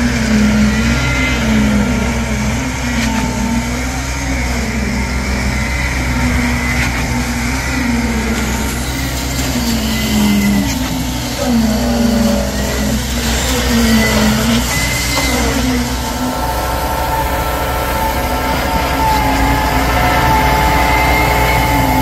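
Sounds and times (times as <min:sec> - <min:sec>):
diesel engine droning: 0:00.0 - 0:22.0.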